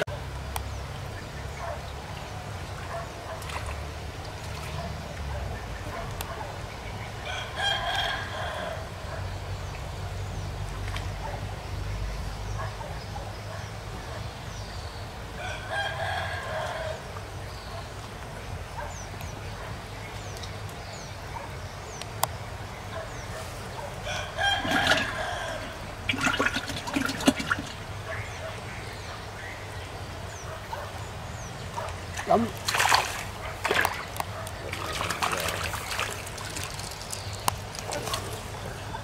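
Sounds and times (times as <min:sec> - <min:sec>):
rooster crowing: 0:07.2 - 0:08.9, 0:15.4 - 0:17.0, 0:24.0 - 0:25.9
small birds chirping: 0:17.4 - 0:39.0.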